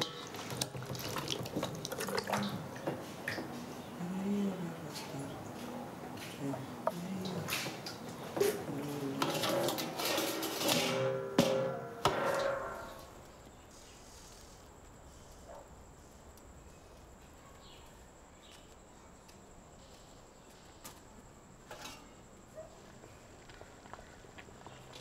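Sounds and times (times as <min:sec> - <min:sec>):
metal cookware clanking: 0:00.0 - 0:01.4, 0:09.2 - 0:13.1.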